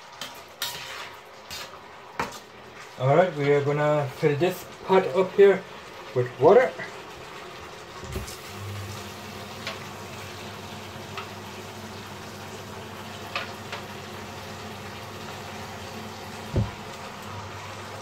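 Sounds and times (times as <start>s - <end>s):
tap water filling a saucepan: 7.1s - 18.0s.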